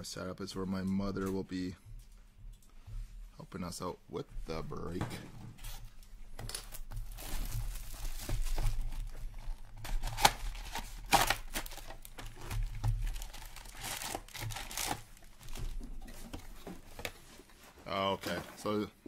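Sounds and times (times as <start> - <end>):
box and foil packs rustling: 5.6 - 18.9
plastic wrap crinkling: 5.9 - 18.8
sharp plastic crackles: 6.3 - 17.2.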